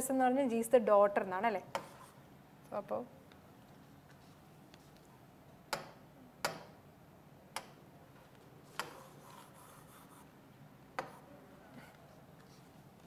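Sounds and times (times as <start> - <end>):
scratchy pen strokes: 8.7 - 10.3.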